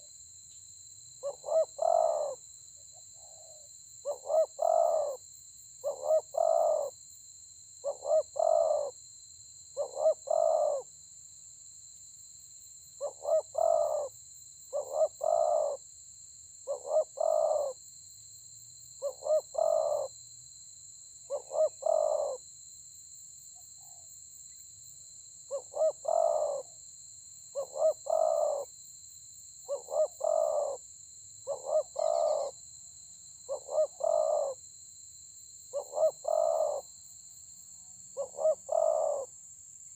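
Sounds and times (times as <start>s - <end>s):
dove cooing: 1.2s - 2.4s, 3.2s - 5.2s, 5.8s - 6.9s, 7.8s - 8.9s, 9.8s - 10.8s, 13.0s - 14.1s, 14.7s - 15.8s, 16.7s - 17.8s, 19.0s - 20.1s, 21.3s - 22.4s, 25.5s - 26.7s, 27.6s - 28.7s, 29.7s - 30.8s, 31.5s - 32.6s, 33.5s - 34.6s, 35.8s - 36.8s, 38.2s - 39.3s.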